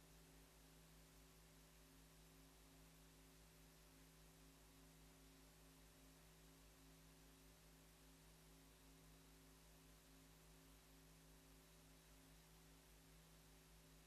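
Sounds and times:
faint electrical hum: 0.0s - 14.0s
low hiss: 0.0s - 14.0s.

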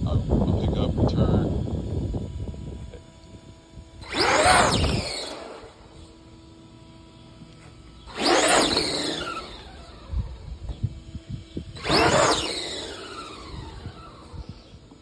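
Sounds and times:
toy truck motor whining: 3.2s - 15.0s.

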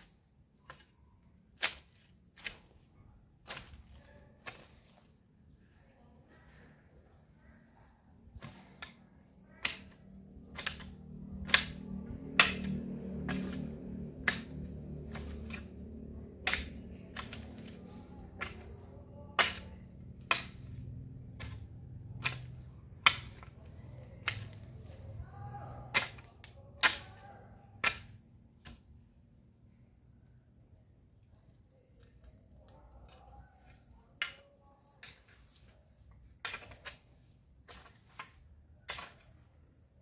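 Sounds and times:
hoe blade striking hard ground: 0.0s - 5.1s, 8.4s - 28.8s, 33.6s - 39.5s
low background rumble: 6.9s - 34.2s.

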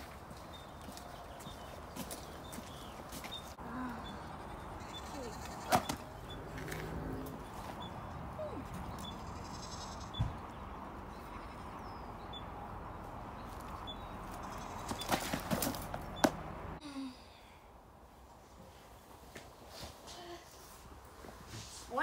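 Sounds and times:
outdoor background noise: 0.0s - 22.0s
faint animal bleat: 3.9s - 5.8s.

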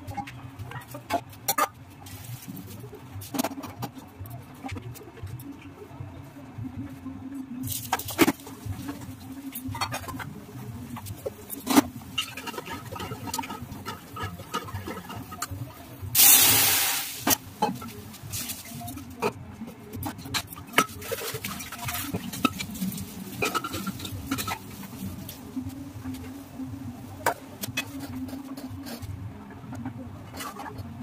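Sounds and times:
food sizzling in hot oil: 16.2s - 17.4s.

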